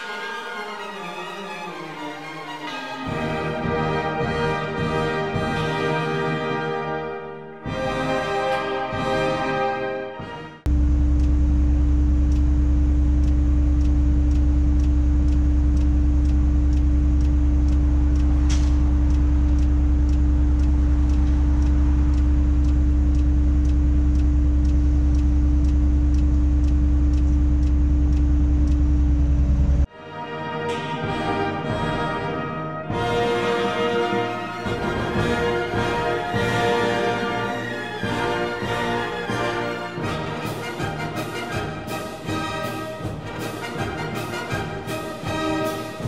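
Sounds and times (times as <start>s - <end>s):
background music: 0.0s - 10.7s, 29.9s - 46.0s
light ticking: 10.7s - 29.8s
crane engine drone: 10.7s - 29.9s.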